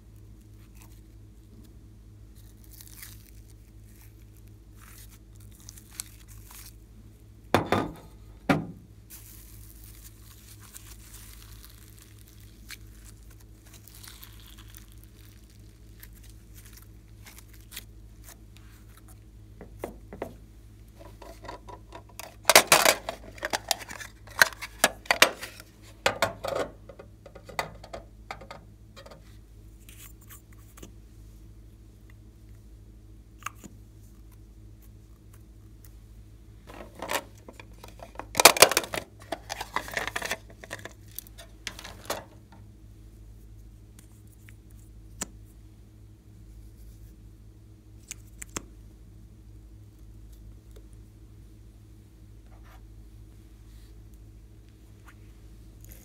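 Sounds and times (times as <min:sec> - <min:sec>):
knocks: 0:07.6 - 0:08.8.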